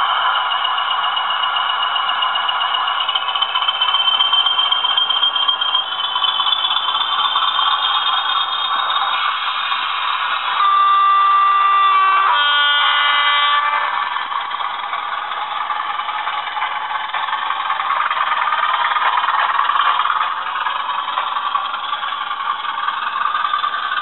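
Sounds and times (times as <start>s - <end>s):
high engine whistle: 0.0s - 15.9s
model diesel engine sound: 0.0s - 24.0s.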